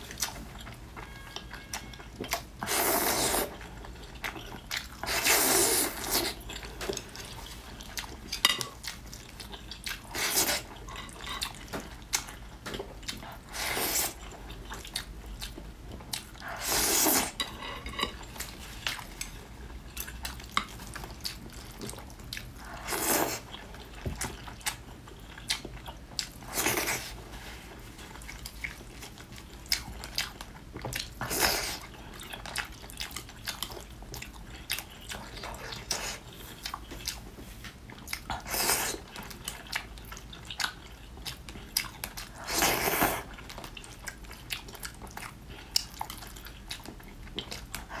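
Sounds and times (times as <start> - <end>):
wet chewing: 28.0 - 48.0.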